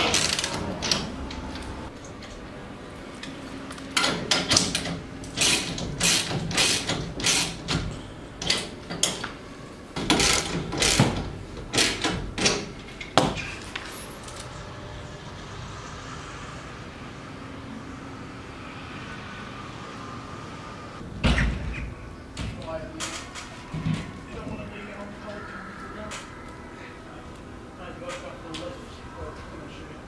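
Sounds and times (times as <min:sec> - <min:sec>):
ratchet spanner ratcheting: 0:04.0 - 0:07.7.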